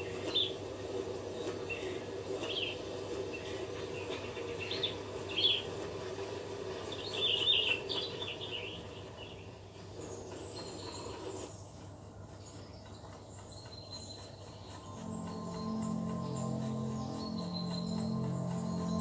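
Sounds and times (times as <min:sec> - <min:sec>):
high insect-like trills: 0:14.8 - 0:19.0
steady low drone: 0:14.8 - 0:19.0.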